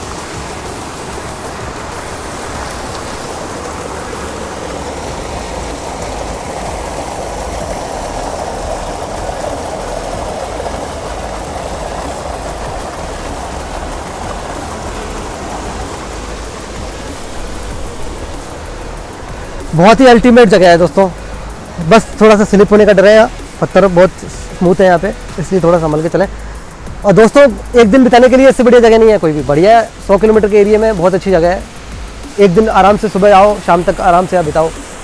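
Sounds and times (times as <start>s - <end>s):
waterfall rushing: 0.0s - 35.0s.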